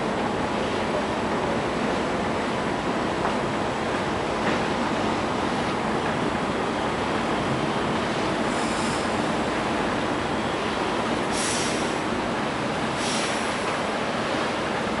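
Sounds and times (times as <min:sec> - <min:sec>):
wind: 0:00.0 - 0:15.0
hissy gusts: 0:06.3 - 0:15.0.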